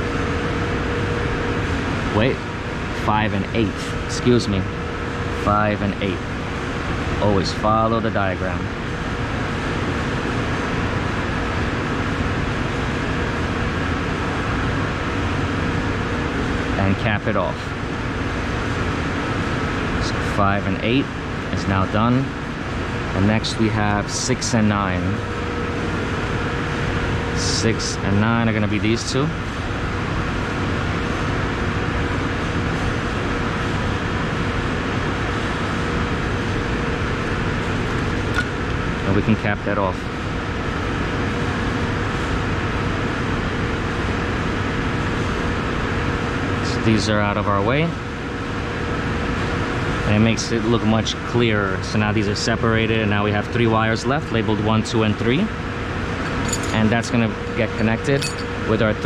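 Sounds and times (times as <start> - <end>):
faint steady hum: 0.0 - 59.0
machinery rumble and hiss: 0.0 - 59.0
steady mid-pitched tone: 56.3 - 59.0.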